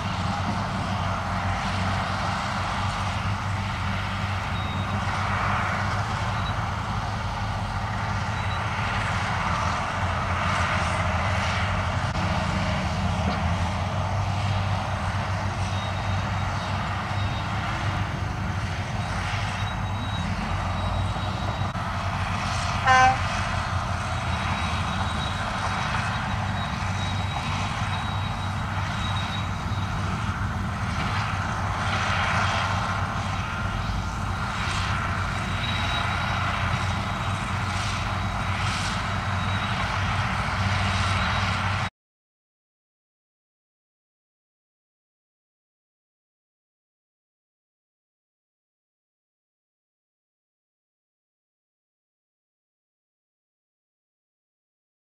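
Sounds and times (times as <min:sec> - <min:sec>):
diesel truck engines rumbling: 0:00.0 - 0:41.9
short loud horn beep: 0:22.8 - 0:23.4.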